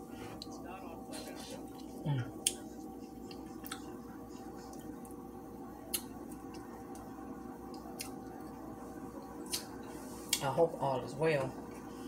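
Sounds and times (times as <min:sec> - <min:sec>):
room hum: 0:00.0 - 0:12.0
wet mouth smacks: 0:09.5 - 0:09.7.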